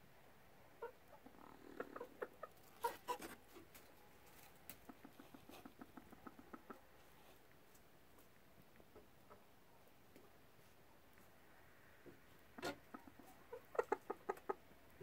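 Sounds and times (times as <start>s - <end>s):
hens clucking: 0.8s - 7.6s, 8.8s - 10.4s, 12.0s - 15.0s.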